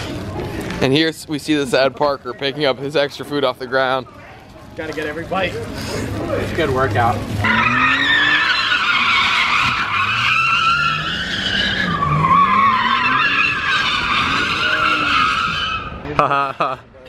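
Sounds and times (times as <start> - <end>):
car engine revving: 5.6 - 16.0
tyres squealing: 5.6 - 16.1.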